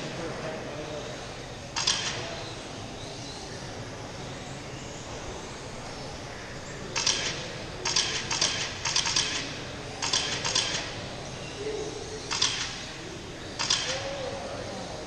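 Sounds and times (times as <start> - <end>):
hall background hum: 0.0 - 15.0.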